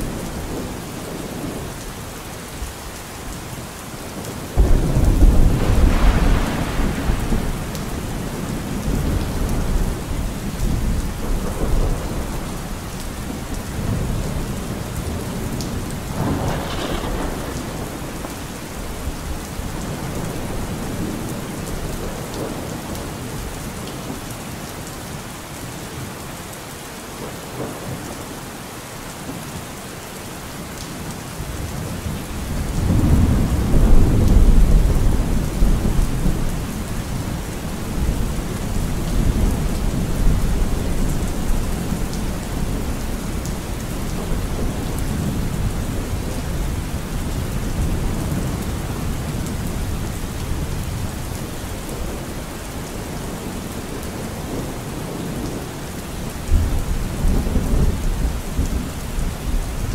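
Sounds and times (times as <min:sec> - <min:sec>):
steady rain: 0:00.0 - 0:59.9
rolling thunder: 0:04.6 - 0:22.8, 0:32.1 - 0:51.4.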